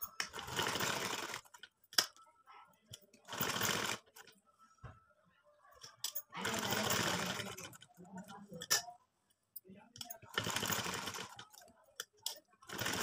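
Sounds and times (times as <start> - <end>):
sewing machine stitching: 0.1 - 1.6, 3.3 - 4.3, 6.4 - 7.8, 10.2 - 11.6, 12.7 - 13.0.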